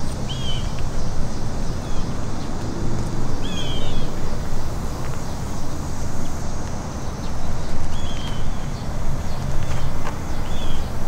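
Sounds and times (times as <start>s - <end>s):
low rumbling wind: 0.0s - 11.0s
footsteps on asphalt: 3.8s - 11.0s.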